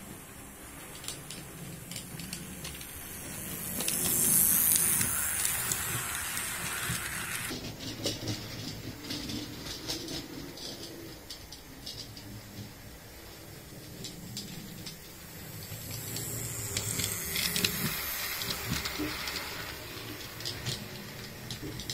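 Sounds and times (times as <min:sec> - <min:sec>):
loud steam hiss: 0:00.0 - 0:07.5, 0:14.8 - 0:21.9
model train motor hum: 0:00.0 - 0:10.2, 0:11.1 - 0:21.9
wheels clicking over rail joints: 0:00.0 - 0:21.9.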